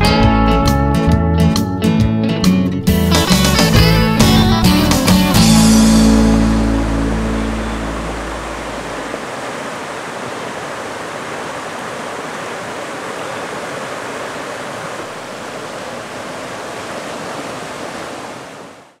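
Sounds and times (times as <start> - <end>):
river water rushing: 5.3 - 19.0.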